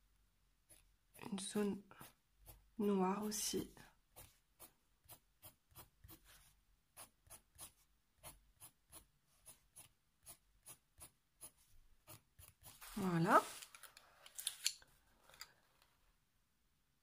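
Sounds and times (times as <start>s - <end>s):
pencil hatching on paper: 0.6s - 13.6s.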